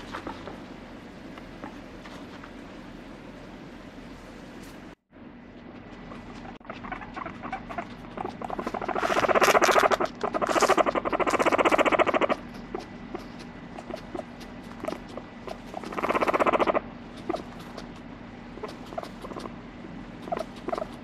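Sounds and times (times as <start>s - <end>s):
guinea pig buzzing purrs: 5.2s - 21.0s.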